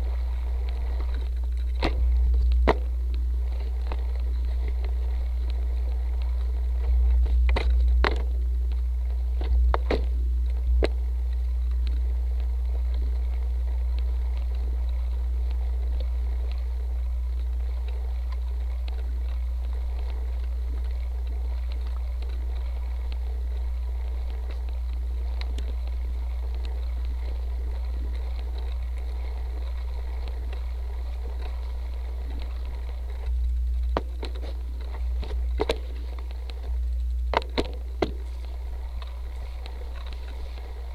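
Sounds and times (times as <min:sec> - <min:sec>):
bike rolling over grass rumble: 0:00.0 - 0:40.9
bike knocks and rattles: 0:07.2 - 0:08.4, 0:37.2 - 0:39.1.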